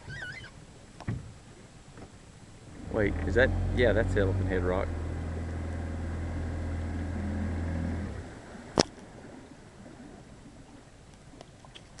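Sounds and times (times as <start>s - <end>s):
outboard motor running: 2.7s - 8.5s.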